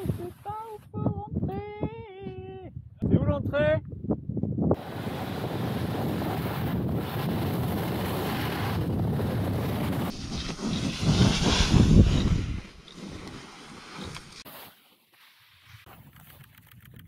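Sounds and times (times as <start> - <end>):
wind roaring over microphone: 0.9 - 13.6.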